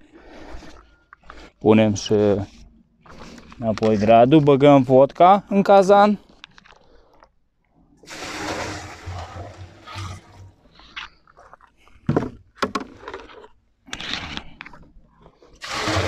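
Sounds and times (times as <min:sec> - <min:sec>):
liquid pouring from bucket into pot: 0:08.0 - 0:10.6, 0:15.6 - 0:16.0
short scraping noise: 0:08.1 - 0:11.0, 0:15.6 - 0:16.0.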